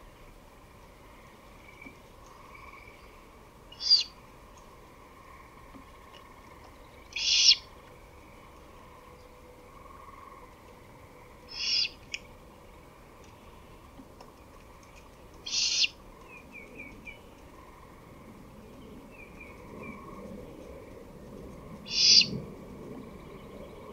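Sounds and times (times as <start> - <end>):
owl screeching: 3.8 - 4.1, 7.2 - 7.7, 11.5 - 12.0, 15.5 - 16.0, 21.9 - 22.3.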